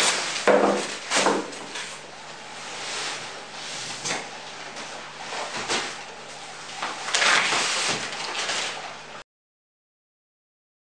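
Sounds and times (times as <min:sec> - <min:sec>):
cardboard box rustling and scraping: 0:07.0 - 0:08.8.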